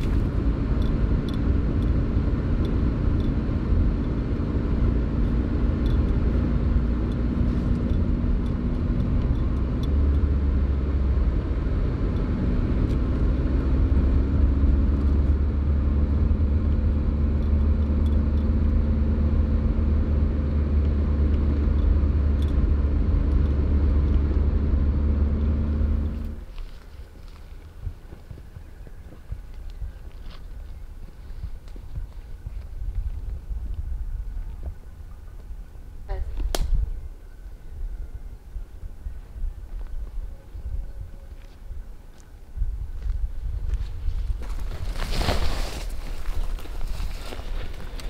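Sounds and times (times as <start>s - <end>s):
low road rumble: 0.0s - 48.0s
vehicle engine drone: 0.0s - 48.0s.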